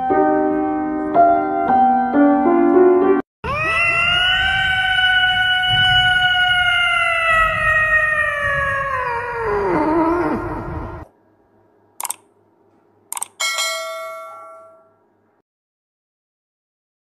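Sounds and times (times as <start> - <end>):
cat yowling: 3.4 - 11.0.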